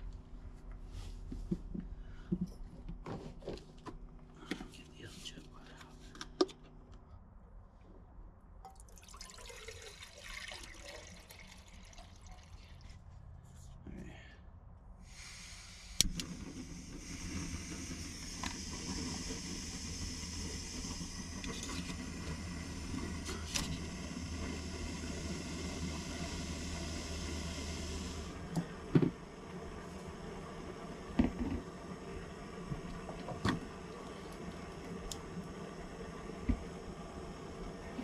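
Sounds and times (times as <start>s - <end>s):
camp stove burner hissing: 15.0s - 38.0s.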